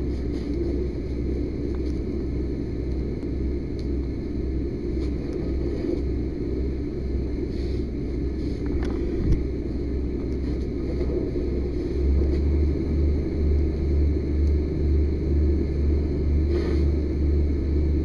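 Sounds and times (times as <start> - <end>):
fire hose spraying water: 16.5 - 17.0.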